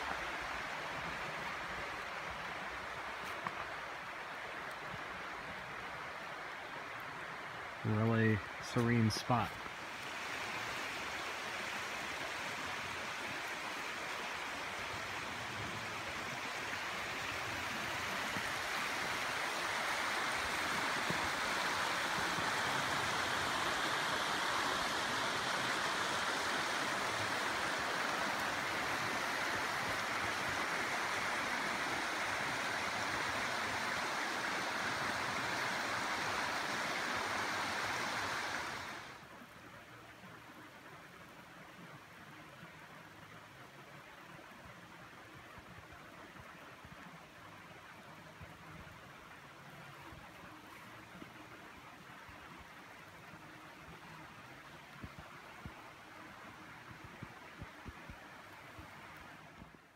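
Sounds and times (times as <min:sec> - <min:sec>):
creek water running over rocks: 0:00.0 - 0:59.9.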